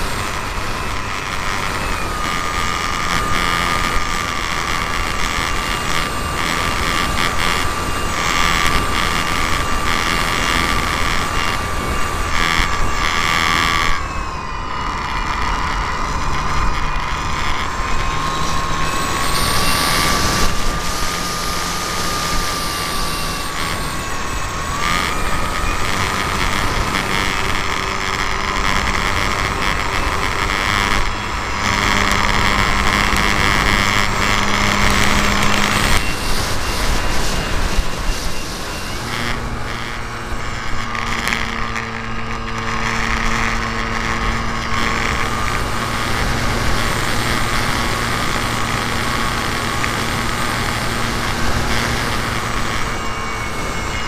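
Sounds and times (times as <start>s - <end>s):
model plane motor and propeller: 0.0s - 54.0s.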